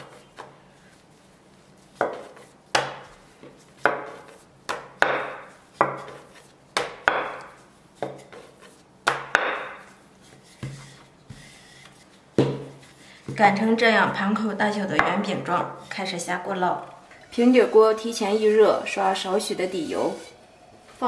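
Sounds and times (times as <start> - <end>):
rolling pin on wooden board: 1.8 - 13.7.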